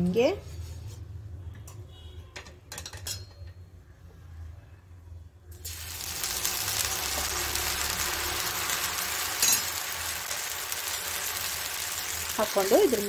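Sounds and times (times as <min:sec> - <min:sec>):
batter sizzling on hot griddle: 0:05.6 - 0:13.0.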